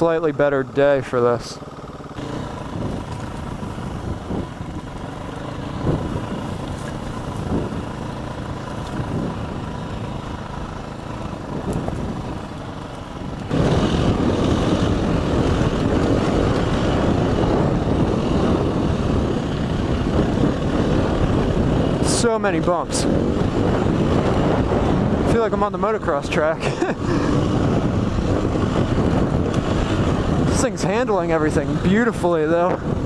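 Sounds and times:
dirt bike engine running: 0:00.0 - 0:33.0.

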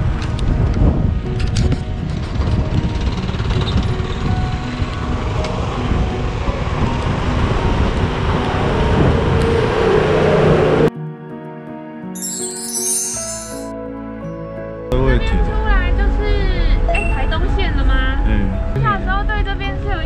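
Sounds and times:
background music: 0:00.0 - 0:10.0, 0:10.8 - 0:20.0
car engine and tyre noise: 0:00.0 - 0:10.9.

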